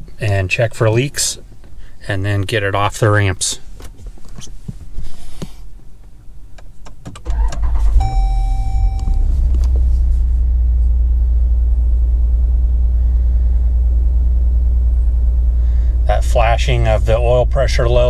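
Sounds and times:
car engine starting and idling: 0:06.9 - 0:18.0.

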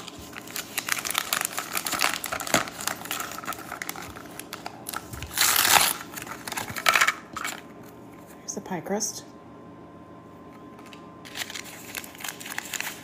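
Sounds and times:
plastic packet crackling: 0:00.0 - 0:07.6, 0:10.8 - 0:13.0
plastic packet ripping open: 0:00.0 - 0:07.6, 0:10.8 - 0:13.0.

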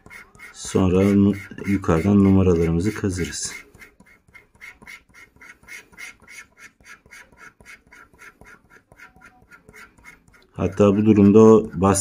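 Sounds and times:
coin scratching a card: 0:00.0 - 0:12.0.

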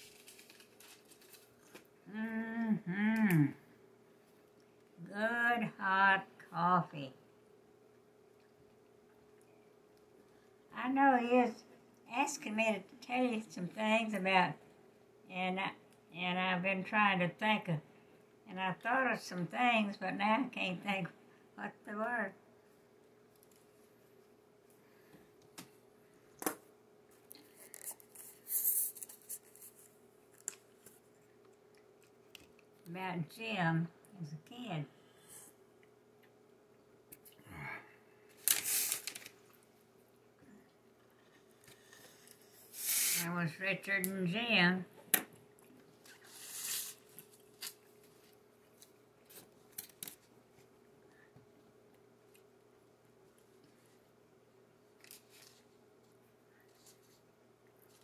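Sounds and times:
foam cup and napkin rustling: 0:00.0 - 0:01.8, 0:27.4 - 0:30.0, 0:38.3 - 0:39.4, 0:41.3 - 0:43.3, 0:46.0 - 0:48.4
faint steady hum: 0:00.0 - 0:58.0.

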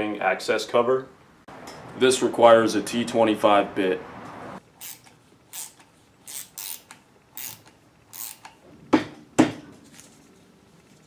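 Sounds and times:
ratchet driver clicking: 0:04.8 - 0:08.6.

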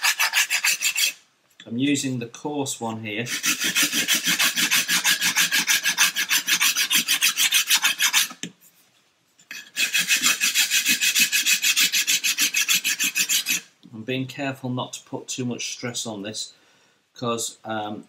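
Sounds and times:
sanding stick rasping on wood: 0:00.0 - 0:01.2, 0:03.3 - 0:08.4, 0:09.6 - 0:13.6.

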